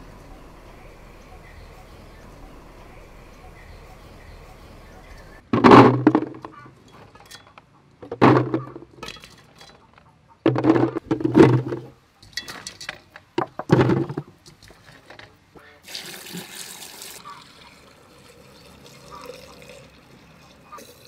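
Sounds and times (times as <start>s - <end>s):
small fruits clattering into plastic jar: 5.5s - 7.4s, 8.0s - 9.8s, 10.5s - 15.4s.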